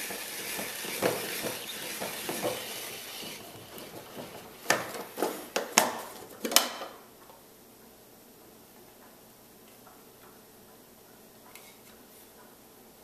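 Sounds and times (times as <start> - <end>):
spiralizer grating vegetable: 0.0 - 5.2.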